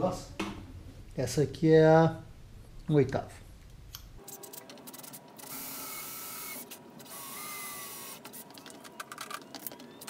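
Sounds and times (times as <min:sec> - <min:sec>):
electric drill whining: 0:05.4 - 0:08.2.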